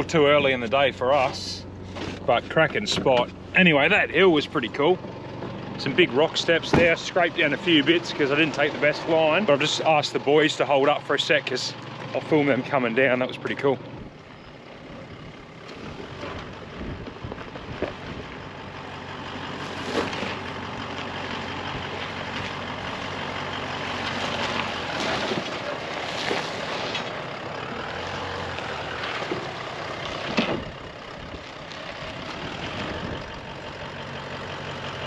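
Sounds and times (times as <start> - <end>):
engine running at low revs: 0.0 - 35.0
vehicle knocking and scraping on rock: 0.2 - 4.4, 6.2 - 12.4, 15.7 - 18.5, 19.4 - 23.2, 23.8 - 27.3, 28.4 - 33.4
tyres grinding over rock: 19.4 - 33.2.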